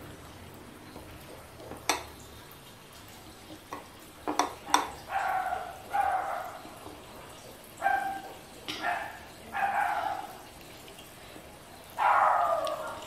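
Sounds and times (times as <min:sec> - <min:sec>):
food clicking against ceramic plates: 0:01.0 - 0:02.2, 0:03.5 - 0:05.1
dog barking: 0:05.0 - 0:06.8, 0:07.8 - 0:10.5, 0:12.0 - 0:13.0.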